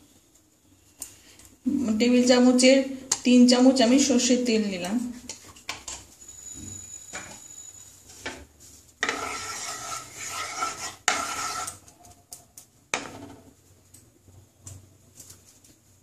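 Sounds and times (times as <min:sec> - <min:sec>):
wooden spatula scraping a pan: 0:07.1 - 0:11.9.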